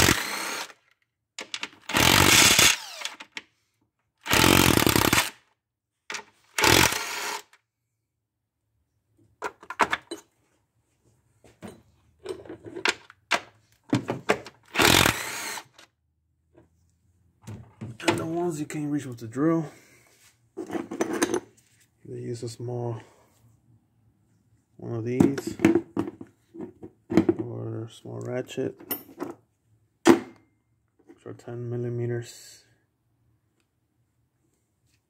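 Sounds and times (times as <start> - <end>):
cordless drill spinning: 0.0 - 0.8, 1.8 - 3.3, 4.2 - 5.4, 6.5 - 7.6, 14.7 - 15.8.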